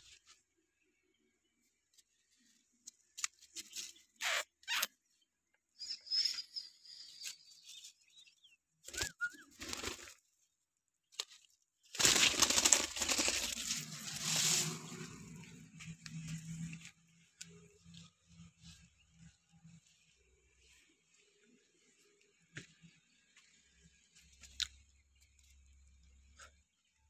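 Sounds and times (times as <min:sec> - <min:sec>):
plant stems rustling: 0:11.1 - 0:19.4.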